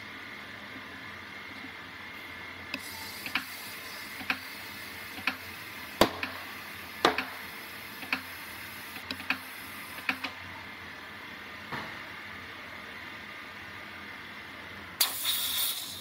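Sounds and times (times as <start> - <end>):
air hissing: 15.0 - 16.0.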